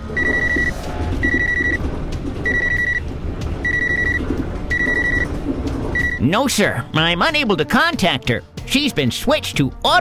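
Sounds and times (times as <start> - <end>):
train low rumble: 0.0 - 7.8
phone ringing beeps: 0.1 - 1.8, 2.4 - 3.0, 3.6 - 5.3, 6.0 - 6.3.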